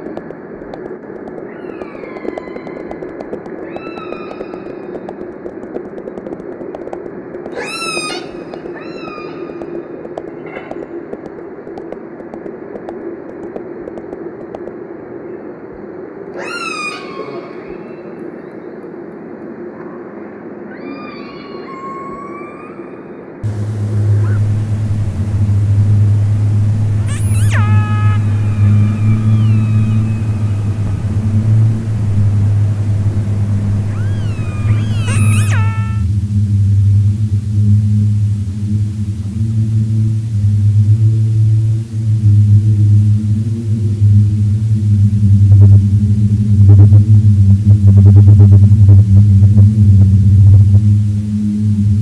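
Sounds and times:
sharp clicks: 0.0s - 14.8s, 23.4s - 36.0s
sliding electronic tones: 23.4s - 36.1s
low electronic drone: 23.4s - 52.0s
low machine rumble: 23.4s - 52.0s
high pitched cry: 27.0s - 30.7s, 33.9s - 36.0s.

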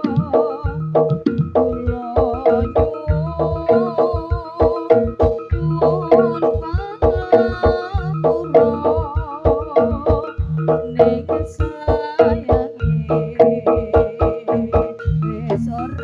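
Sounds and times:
drums beating quick rhythm: 0.0s - 16.0s
ringing metal percussion: 0.0s - 16.0s
wavering melody line: 0.0s - 16.0s.

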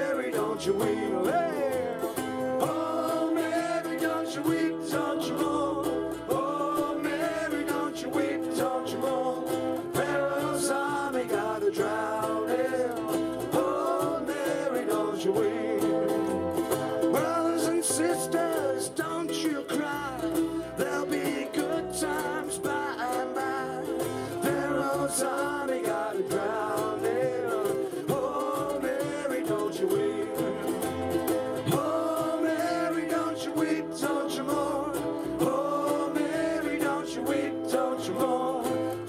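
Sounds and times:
cajon beat: 0.0s - 39.0s
people singing: 0.0s - 39.0s
ukuleles strummed: 0.0s - 39.0s.

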